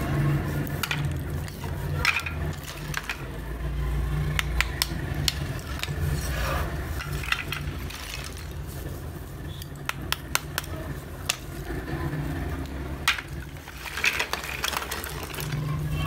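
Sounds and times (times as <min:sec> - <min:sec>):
clay slabs clinking and scraping: 0:00.0 - 0:16.0.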